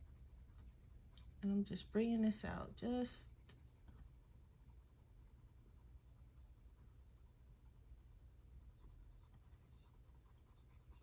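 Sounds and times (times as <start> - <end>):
low steady hum: 0.0 - 11.0
pencil scratching on paper: 0.0 - 11.0.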